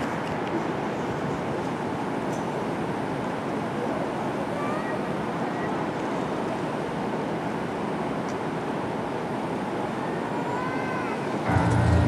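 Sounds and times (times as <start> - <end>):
murmur of audience: 9.9 - 12.0
echoing arena room sound: 11.4 - 12.0.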